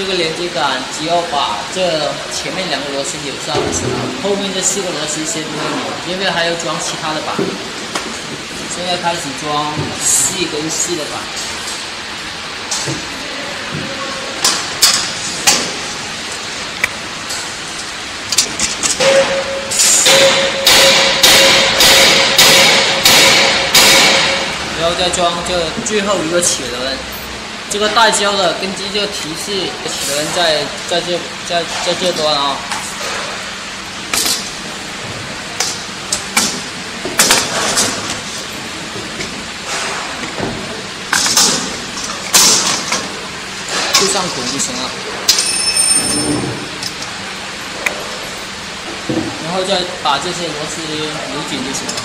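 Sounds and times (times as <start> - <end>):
steady background hiss: 0.0 - 52.0
steady background noise: 0.0 - 52.0
sheet metal knocks and clanks: 19.0 - 24.6.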